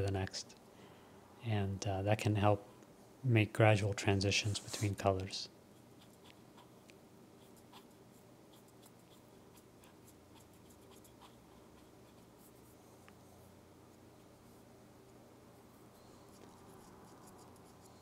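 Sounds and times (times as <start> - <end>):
pen nib scratching on paper: 7.4 - 12.8, 16.2 - 18.0.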